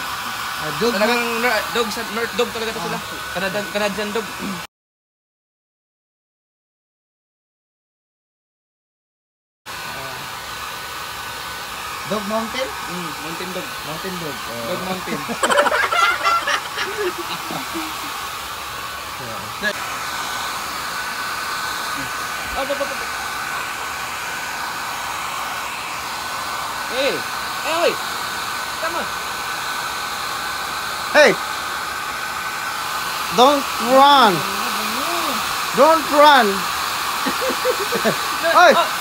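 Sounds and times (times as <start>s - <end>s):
hair dryer blowing with whine: 0.0s - 4.7s, 9.7s - 39.0s.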